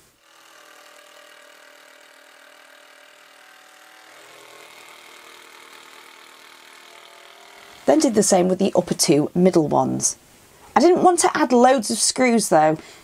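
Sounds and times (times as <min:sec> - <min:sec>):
impact driver motor whirring: 0:00.0 - 0:08.2.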